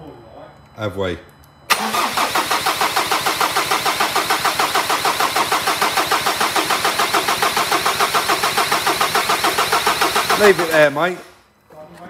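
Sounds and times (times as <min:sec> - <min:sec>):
diesel engine cranking without firing: 0:01.7 - 0:11.3.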